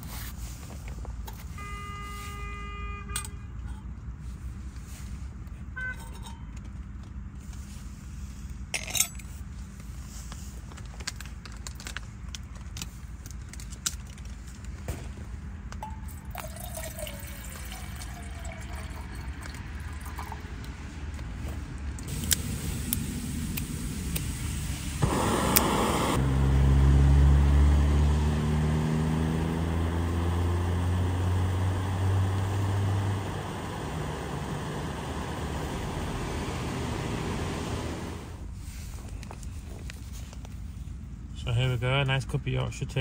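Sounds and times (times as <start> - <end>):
road traffic hum: 0.0 - 43.0
metal clinks: 8.7 - 9.3
water pouring into metal mug: 15.8 - 20.7.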